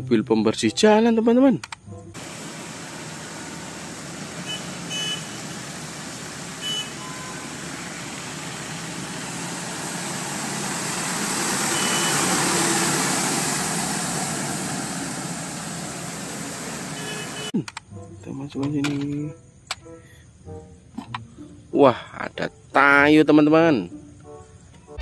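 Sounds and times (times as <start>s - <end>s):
road sweeper truck engine: 2.2s - 17.5s.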